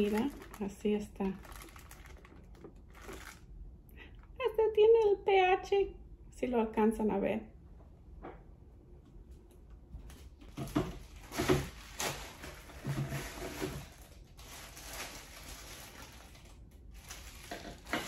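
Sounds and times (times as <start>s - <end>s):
plastic wrapping crinkling: 0.0s - 4.4s, 10.5s - 18.0s.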